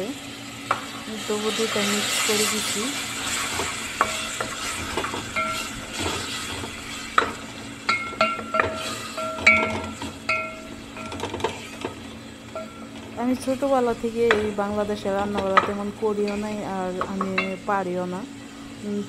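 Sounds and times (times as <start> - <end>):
food sizzling in oil: 0.0 - 19.0
spoon scraping pan: 3.2 - 13.2
spoon clinking against pan: 7.9 - 11.3.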